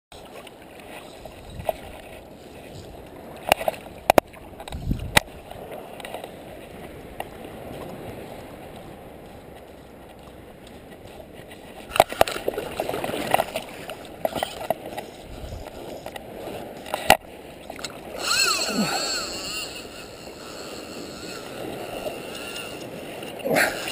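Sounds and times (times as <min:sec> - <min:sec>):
sea water sloshing around legs: 0:10.2 - 0:23.9.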